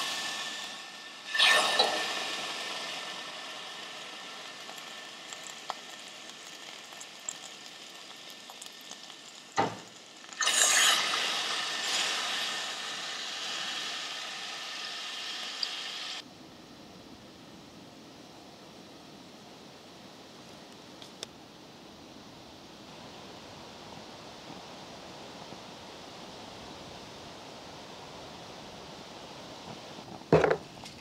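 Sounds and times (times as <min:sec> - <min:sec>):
food sizzling in a pan: 0:00.0 - 0:16.2.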